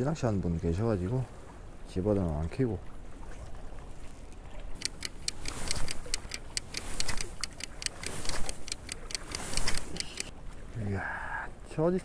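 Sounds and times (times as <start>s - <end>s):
clock ticking: 4.8s - 10.3s.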